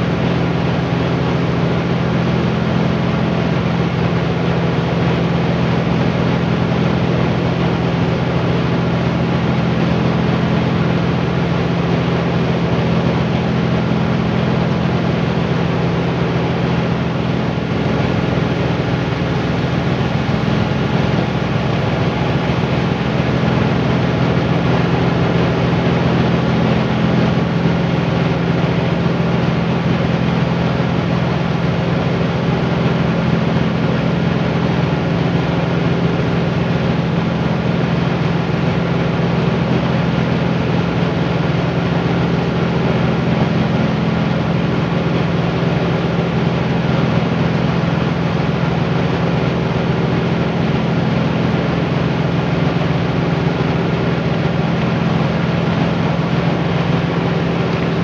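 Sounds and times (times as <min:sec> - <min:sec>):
rice-milling machine humming: 0:00.0 - 0:58.0.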